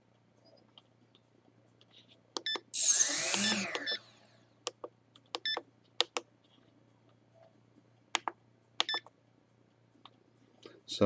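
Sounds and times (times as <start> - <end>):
electronic key beeps: 8.8 - 9.1.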